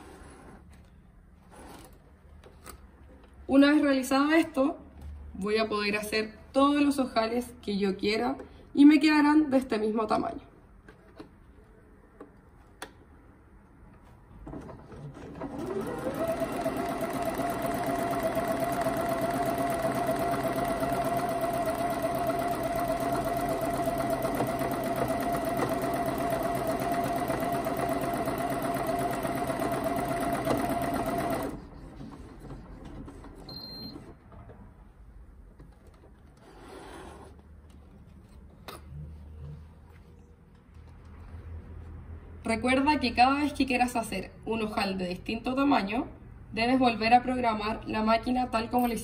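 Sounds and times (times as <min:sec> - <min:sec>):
sewing machine stitching: 0:14.7 - 0:33.6.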